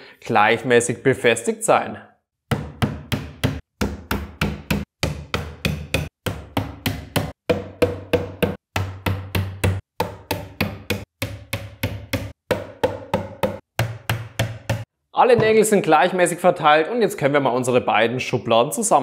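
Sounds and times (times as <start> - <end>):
hammer striking nails into wood: 2.5 - 14.9.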